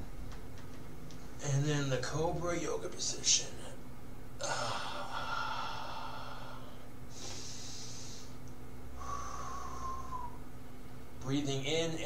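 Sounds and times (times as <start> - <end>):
man breathing loudly: 4.4 - 10.4.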